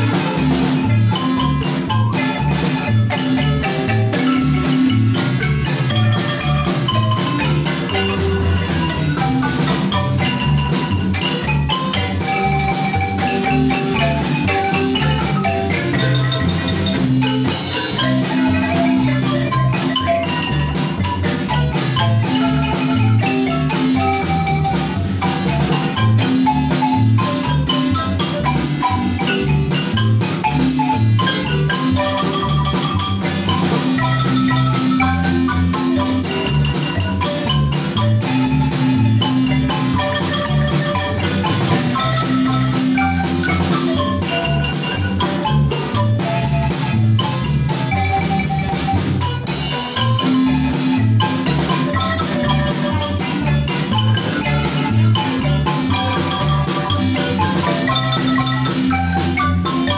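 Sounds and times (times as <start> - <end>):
drum kit: 0.0 - 59.9
marimba ensemble playing: 0.0 - 59.9.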